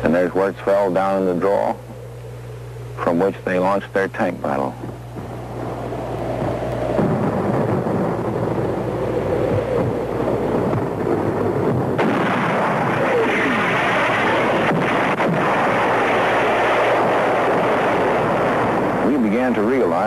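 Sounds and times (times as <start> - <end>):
artillery fire: 9.8 - 19.5
gunfire: 11.7 - 18.9.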